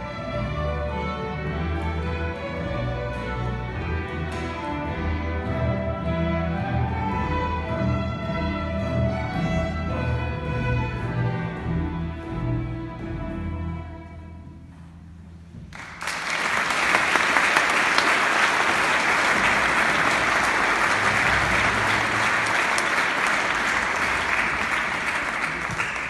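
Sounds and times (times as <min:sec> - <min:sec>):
audience applause: 0:15.8 - 0:26.0.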